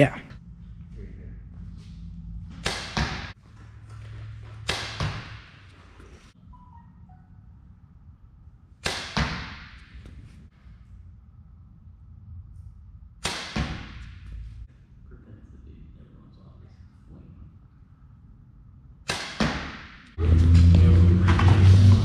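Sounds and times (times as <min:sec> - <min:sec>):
arrow thudding into target: 0:02.6 - 0:03.4, 0:04.6 - 0:05.6, 0:08.8 - 0:10.0, 0:13.2 - 0:14.2, 0:19.1 - 0:20.0.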